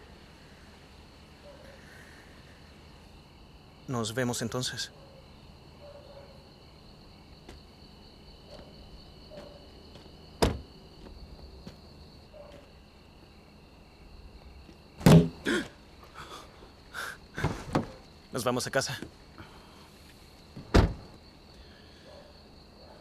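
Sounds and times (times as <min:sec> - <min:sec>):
crickets chirping: 0:00.0 - 0:23.0
loud thumps: 0:10.4 - 0:10.7, 0:15.0 - 0:15.5.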